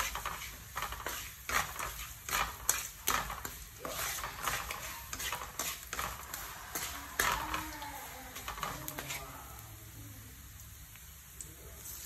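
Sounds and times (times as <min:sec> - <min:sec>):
wooden spatula scraping pan: 0:00.0 - 0:09.4
oil sizzling: 0:00.0 - 0:12.0.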